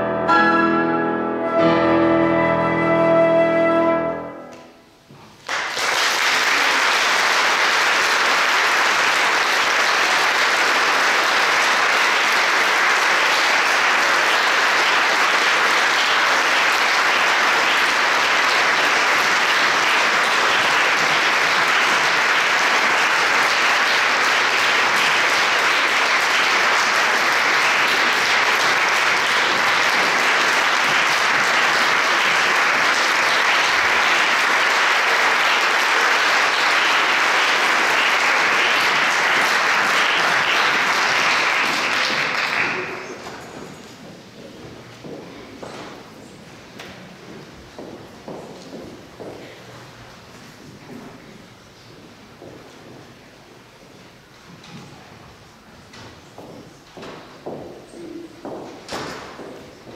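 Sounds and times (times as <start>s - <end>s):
flute and piano music: 0.0s - 4.9s
audience applause: 5.4s - 43.6s.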